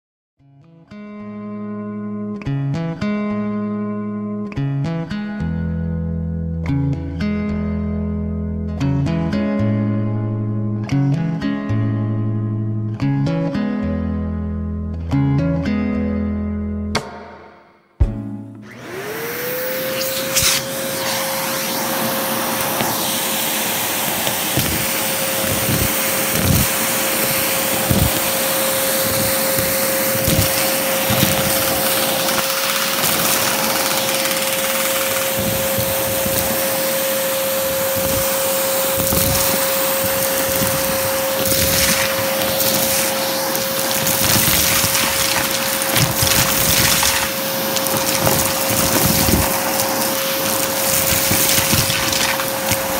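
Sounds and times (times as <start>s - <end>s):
vacuum cleaner running: 18.5s - 52.9s.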